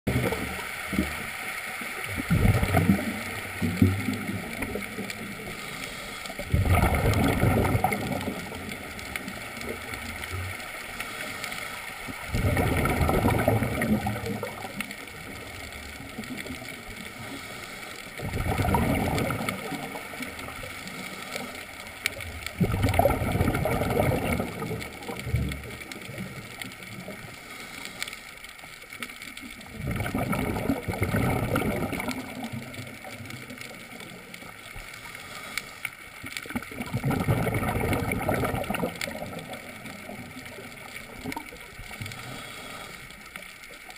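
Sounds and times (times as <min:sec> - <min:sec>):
underwater regulator bubbles gurgling: 0:00.1 - 0:43.9
diver breathing: 0:05.3 - 0:06.6, 0:17.0 - 0:18.2, 0:27.2 - 0:28.4, 0:34.9 - 0:36.2, 0:42.0 - 0:43.5.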